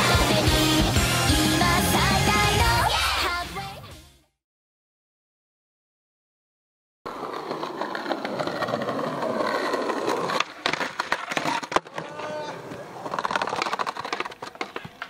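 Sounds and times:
skateboard wheels rolling on concrete: 0:00.0 - 0:02.6, 0:07.1 - 0:15.0
skateboard clacking and scraping on ledge: 0:07.1 - 0:15.0.

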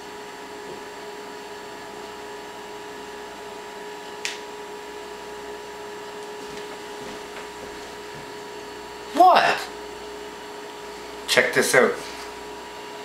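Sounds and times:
two-tone machine hum: 0:00.0 - 0:13.0
sharp snap: 0:04.2 - 0:04.5.

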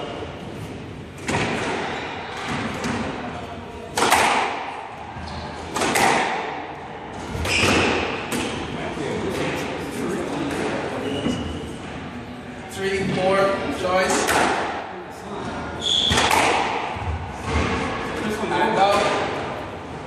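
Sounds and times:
squash ball hits echoing: 0:01.2 - 0:09.6, 0:13.9 - 0:19.6.

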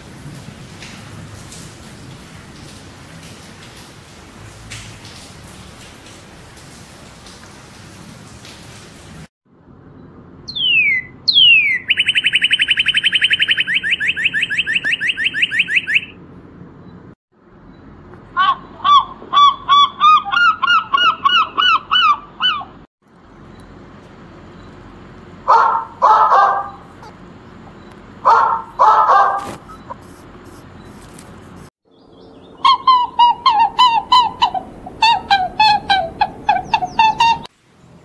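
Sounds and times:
gull calling: 0:10.5 - 0:16.1, 0:18.3 - 0:22.9, 0:32.6 - 0:37.5
bird whistles and trill: 0:10.5 - 0:16.2, 0:29.6 - 0:30.0, 0:32.3 - 0:37.5
dog barking: 0:25.5 - 0:27.1, 0:28.2 - 0:29.9.

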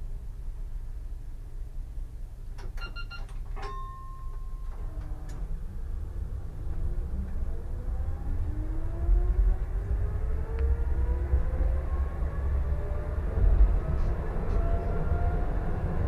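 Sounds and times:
tram running rumble: 0:03.3 - 0:16.0.

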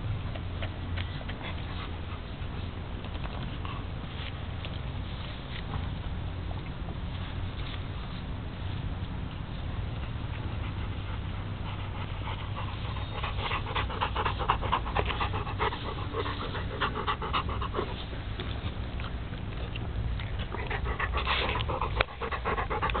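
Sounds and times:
low steady rumble: 0:00.0 - 0:23.0
dog panting: 0:00.2 - 0:04.4, 0:09.9 - 0:19.1, 0:20.2 - 0:23.0.

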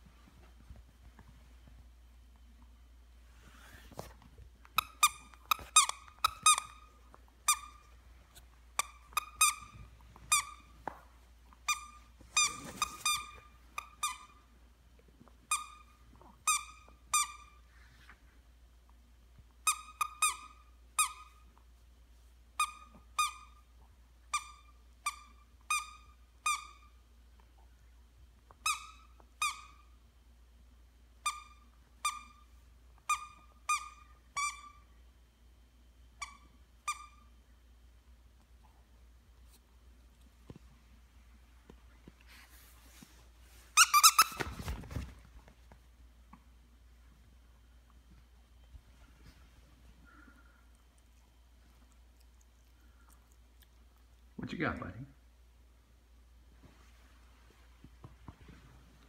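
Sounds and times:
squeaky dog toy squeaking: 0:04.8 - 0:07.9, 0:08.8 - 0:10.7, 0:11.6 - 0:14.4, 0:15.5 - 0:17.6, 0:19.6 - 0:21.4, 0:22.6 - 0:23.6, 0:24.3 - 0:27.0, 0:28.6 - 0:29.9, 0:31.2 - 0:32.4, 0:33.0 - 0:34.8, 0:36.2 - 0:37.3, 0:43.8 - 0:44.5.

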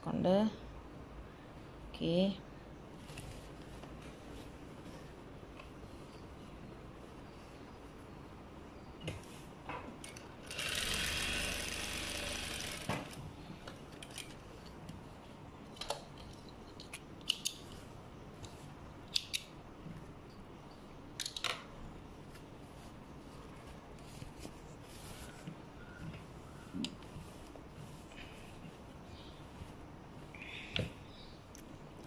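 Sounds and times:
sewing machine stitching: 0:10.4 - 0:13.2.

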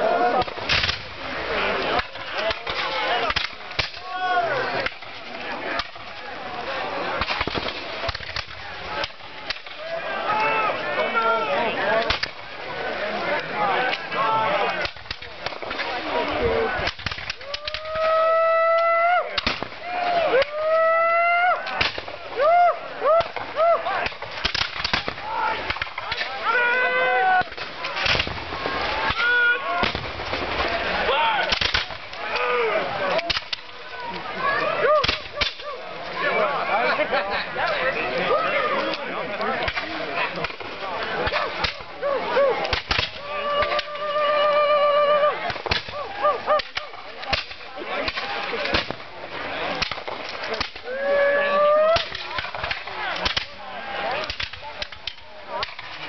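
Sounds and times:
musket shots: 0:00.4 - 0:01.1, 0:07.2 - 0:09.7, 0:19.4 - 0:19.8, 0:24.0 - 0:26.4, 0:27.4 - 0:29.2, 0:29.8 - 0:30.4, 0:31.5 - 0:32.1, 0:46.6 - 0:49.1
men shouting: 0:25.1 - 0:27.6.

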